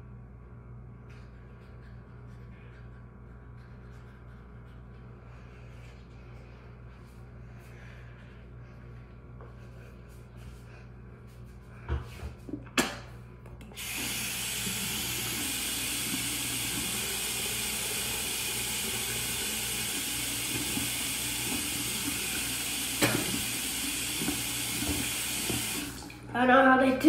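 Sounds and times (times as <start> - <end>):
tap water running into basin: 13.8 - 26.3.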